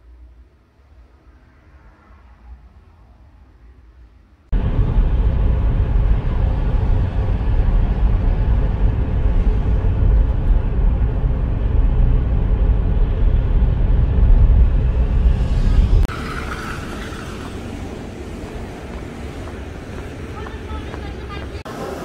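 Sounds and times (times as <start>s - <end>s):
vehicle rumble: 0.0s - 22.0s.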